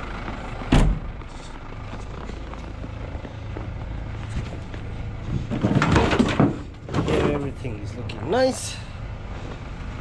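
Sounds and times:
steady low rumble: 0:00.0 - 0:05.8
van door clattering open: 0:00.7 - 0:01.1, 0:05.4 - 0:07.4
footsteps in snow: 0:01.2 - 0:05.2.

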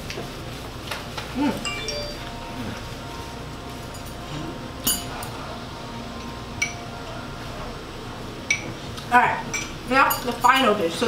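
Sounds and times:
tableware clinking: 0:01.6 - 0:02.8, 0:03.8 - 0:05.4.

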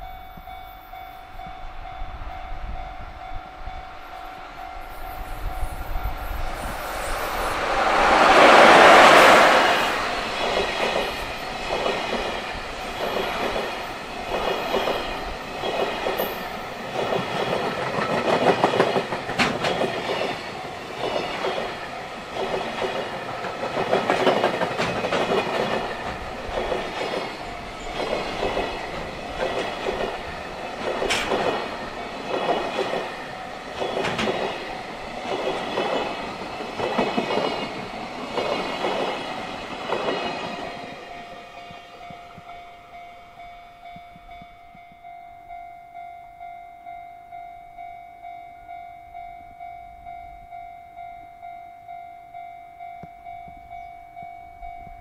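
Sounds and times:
metallic ringing of wheels on rails: 0:00.0 - 0:55.0
train wheels clattering over rail joints: 0:07.6 - 0:40.9.

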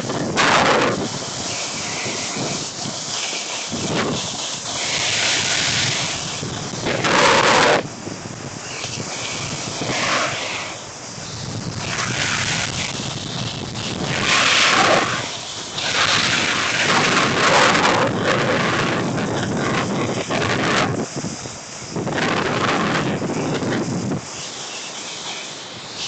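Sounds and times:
snowboard scraping over snow: 0:00.0 - 0:26.0
wind on microphone: 0:00.0 - 0:26.0.

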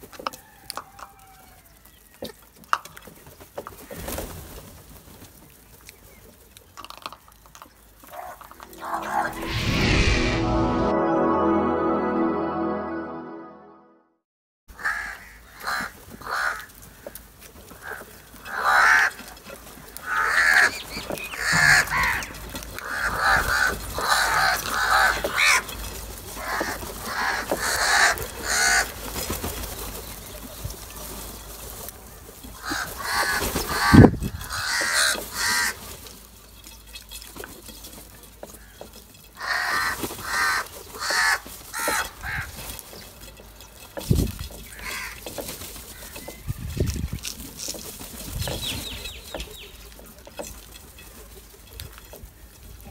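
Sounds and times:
crows cawing: 0:14.8 - 0:17.2, 0:17.8 - 0:19.2, 0:20.0 - 0:20.8, 0:21.4 - 0:25.6, 0:26.4 - 0:29.0, 0:32.6 - 0:35.8, 0:38.6 - 0:42.6, 0:44.7 - 0:46.4.

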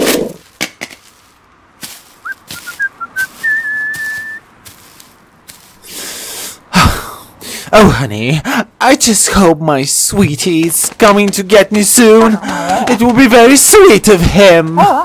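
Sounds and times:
whistled tune: 0:02.2 - 0:04.4.

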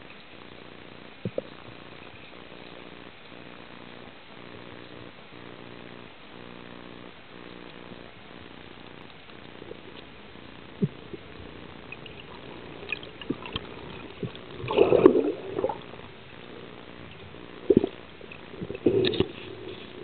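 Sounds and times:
low underwater hiss: 0:00.0 - 0:20.0
bubbling gurgle: 0:09.4 - 0:20.0.

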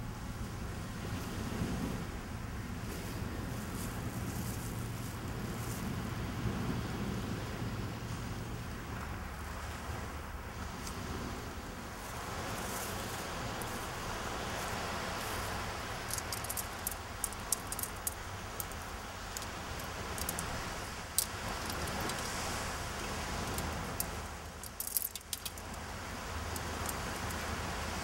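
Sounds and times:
surf washing on a beach: 0:00.0 - 0:28.0
small sharp clicks and rattles: 0:16.0 - 0:22.3, 0:23.4 - 0:25.8, 0:26.5 - 0:27.4.

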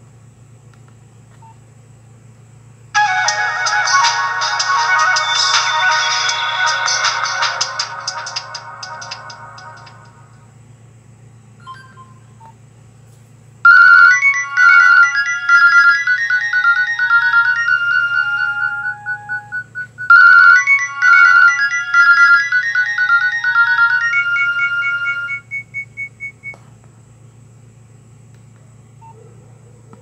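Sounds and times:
chiming phone ringtone: 0:03.0 - 0:10.0, 0:13.7 - 0:25.5.

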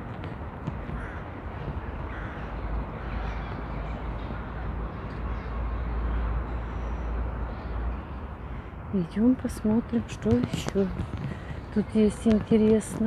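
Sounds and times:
crows cawing: 0:00.9 - 0:01.3, 0:02.0 - 0:03.1.

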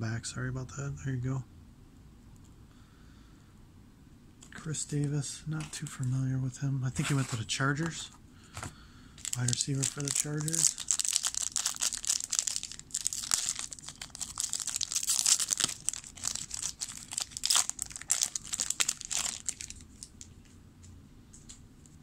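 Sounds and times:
foil wrapper crinkling and tearing: 0:09.2 - 0:20.3.

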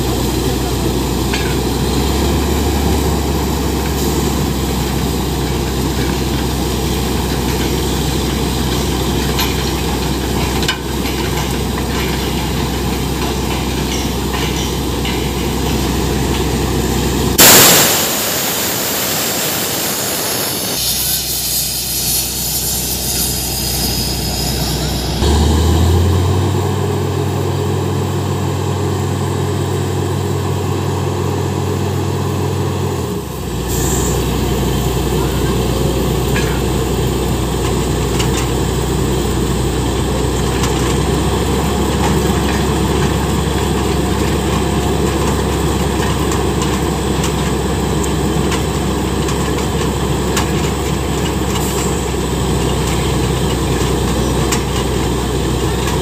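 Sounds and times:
drilling rig engine drone: 0:00.0 - 0:20.9.

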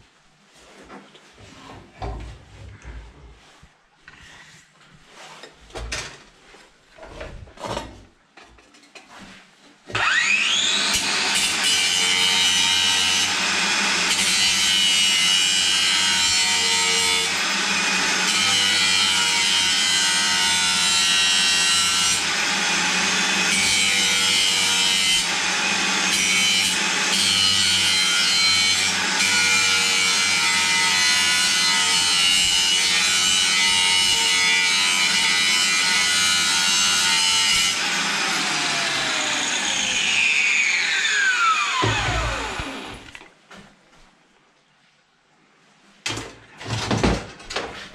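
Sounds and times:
angle grinder cutting metal: 0:10.0 - 0:43.1
grinder disc spinning down: 0:38.3 - 0:43.1.

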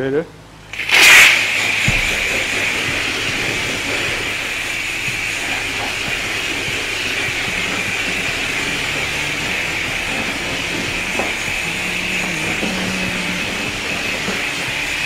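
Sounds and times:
high-pressure water spray hissing: 0:00.7 - 0:15.0.

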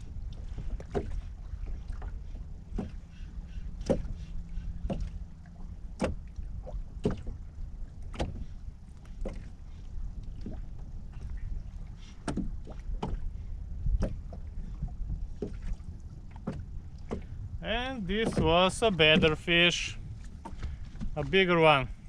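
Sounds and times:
waves slapping against boat hull: 0:00.0 - 0:22.0
wind rumble on microphone: 0:00.0 - 0:22.0.

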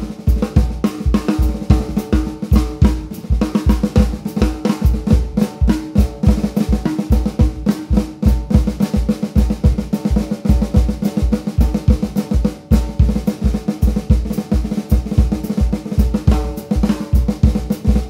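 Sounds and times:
bass drum kick pattern: 0:00.0 - 0:18.0
snare drum strokes and rolls: 0:00.0 - 0:18.0.

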